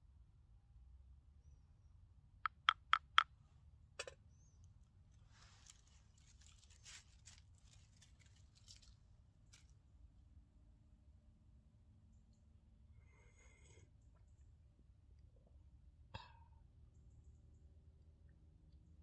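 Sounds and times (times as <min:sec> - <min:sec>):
wooden spoon tapping wooden bowl: 0:02.5 - 0:03.2
dry leaves rustling: 0:05.2 - 0:09.8.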